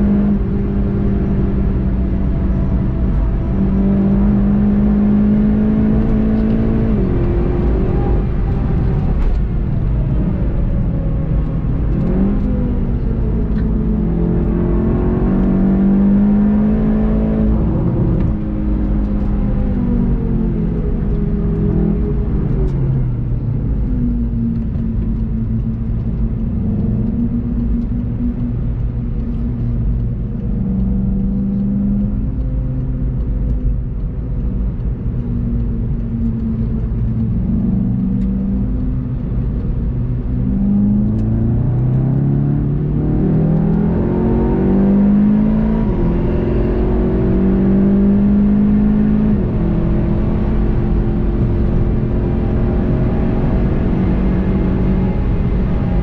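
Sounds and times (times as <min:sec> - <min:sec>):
car engine accelerating: 0:00.0 - 0:56.0.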